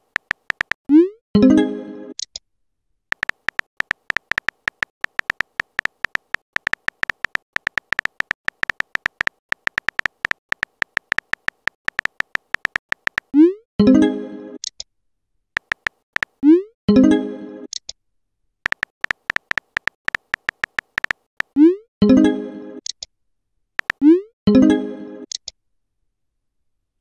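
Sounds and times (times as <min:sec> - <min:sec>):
synthetic keyboard typing clicks: 0:00.0 - 0:01.1, 0:03.1 - 0:13.4, 0:15.6 - 0:16.4, 0:18.6 - 0:21.7, 0:23.8 - 0:24.2.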